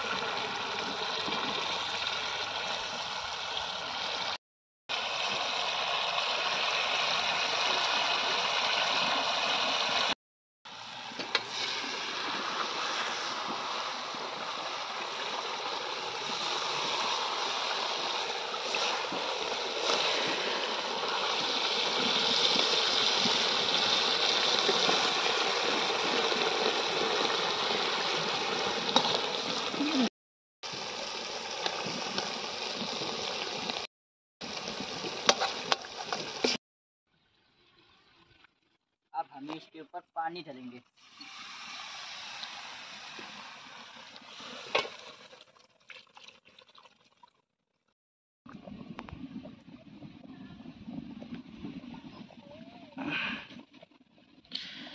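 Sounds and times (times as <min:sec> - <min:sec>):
gravy sizzling and bubbling: 0:00.0 - 0:36.6, 0:41.0 - 0:46.4.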